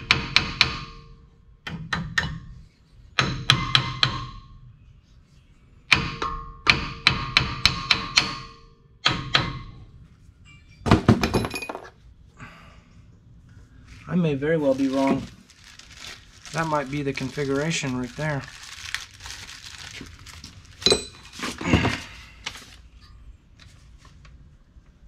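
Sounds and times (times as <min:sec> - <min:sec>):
hammer striking steel: 0:05.9 - 0:09.8.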